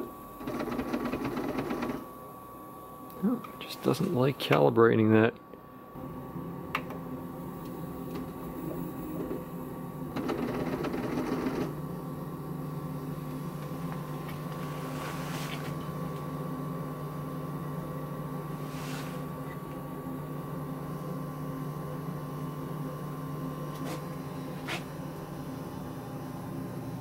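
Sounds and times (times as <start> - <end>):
printer stepper motors humming: 0.0 - 2.1, 6.0 - 27.0.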